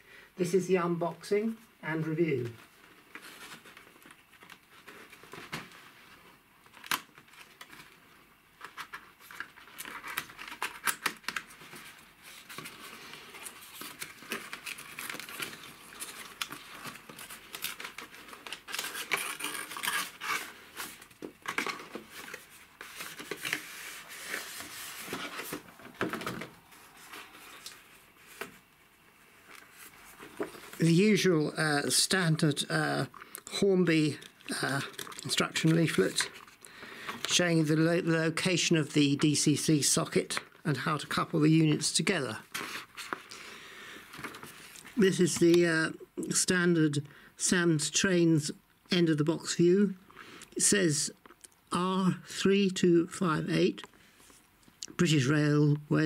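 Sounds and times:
paper rustling: 2.4s - 31.0s, 42.5s - 43.4s, 44.1s - 45.5s
cardboard sliding and scraping: 22.0s - 28.6s.

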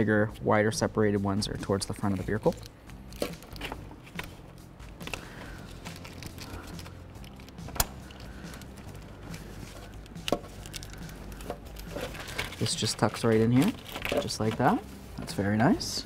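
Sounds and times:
steady low hum: 0.0s - 16.0s
plastic connector handling: 1.6s - 15.4s.

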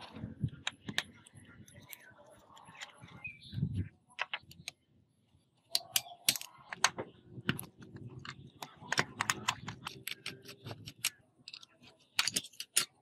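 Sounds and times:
screwdriver clicking and scraping: 5.7s - 13.0s.

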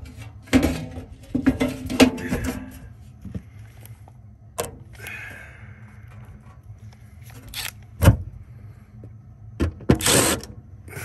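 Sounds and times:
handling knocks and rattles: 0.0s - 3.4s
low steady hum: 0.0s - 11.0s.

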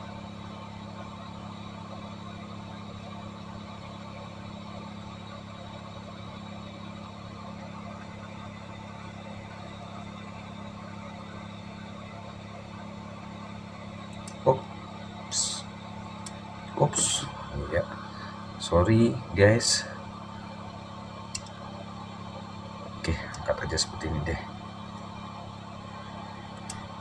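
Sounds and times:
hot air station blowing: 8.4s - 27.0s.

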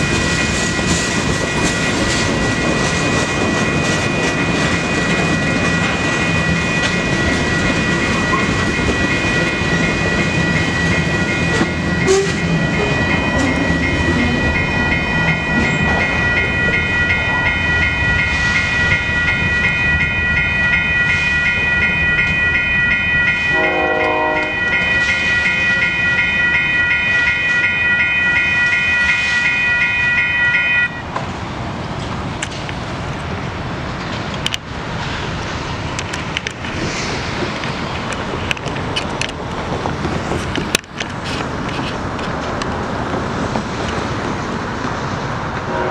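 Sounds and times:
railroad crossing bells ringing: 0.0s - 31.2s, 32.2s - 45.9s
freight train rumble and clatter: 0.0s - 45.9s
train horn: 12.0s - 12.4s, 23.5s - 24.8s, 45.7s - 45.9s.

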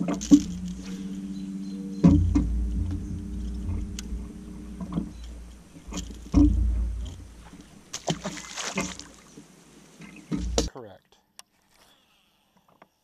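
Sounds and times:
low hum: 0.0s - 9.3s, 10.2s - 10.7s
knocks on aluminium boat: 2.0s - 9.0s, 10.3s - 10.7s.

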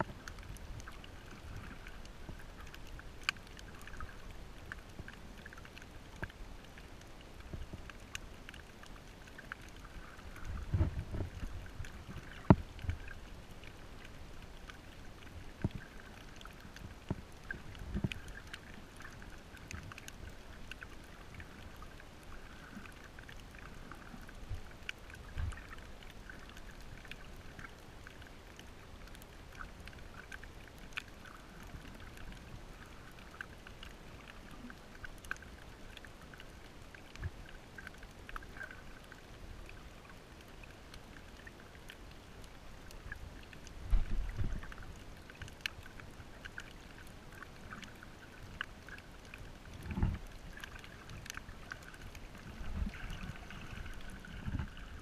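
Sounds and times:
underwater crackle of tiny clicks: 0.0s - 55.0s
dull low thumps and knocks: 10.7s - 11.4s.

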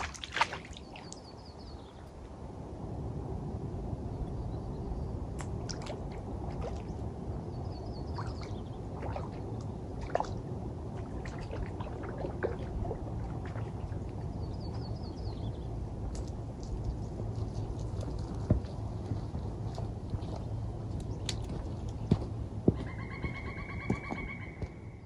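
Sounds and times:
lake water splashing: 0.0s - 1.2s, 5.4s - 7.1s, 8.0s - 15.0s
steady low rumble: 0.0s - 25.0s
bird trilling: 22.8s - 25.0s.

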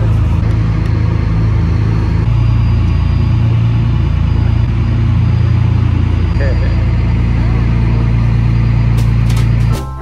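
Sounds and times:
ship engine droning: 0.0s - 10.0s.

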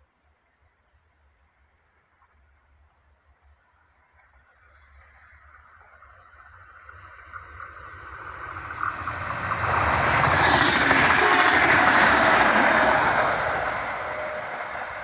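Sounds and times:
electric train passing: 5.0s - 15.0s.

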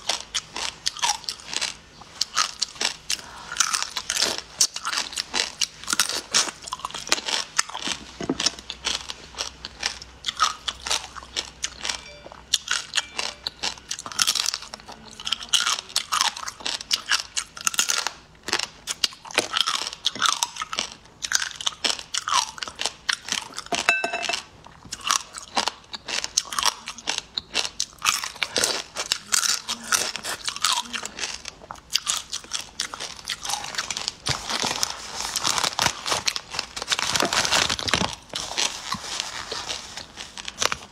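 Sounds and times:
crunchy food chewing: 0.0s - 40.9s
dried food sheet crinkling: 33.0s - 40.9s.

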